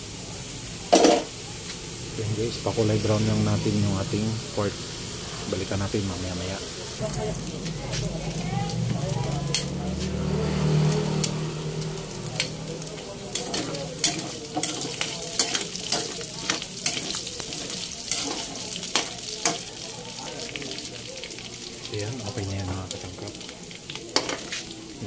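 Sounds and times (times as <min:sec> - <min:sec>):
pork sizzling in oil: 0:00.0 - 0:25.0
low hum: 0:07.0 - 0:12.4.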